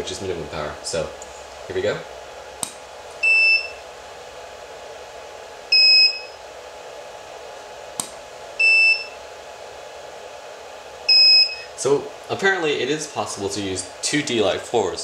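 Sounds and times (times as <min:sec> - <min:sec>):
sharp click: 0:08.0 - 0:08.2.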